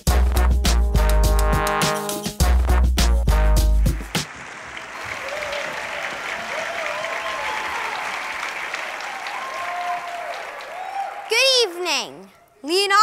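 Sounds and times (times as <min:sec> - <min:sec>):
audience applauding: 0:03.8 - 0:11.8.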